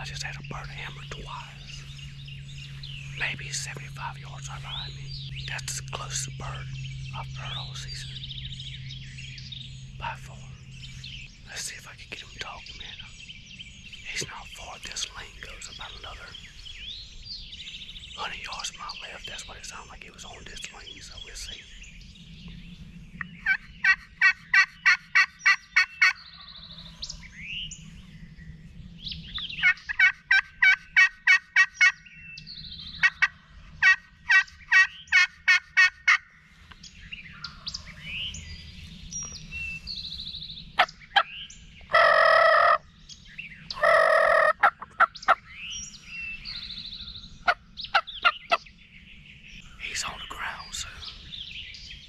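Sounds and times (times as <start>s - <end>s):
songbirds singing faintly: 0.0s - 52.0s
turkey call yelping: 29.6s - 32.0s, 33.0s - 36.2s, 41.9s - 42.8s, 43.7s - 45.4s
turkey gobbling: 29.6s - 32.0s, 33.0s - 36.2s, 41.9s - 42.8s, 43.7s - 45.4s.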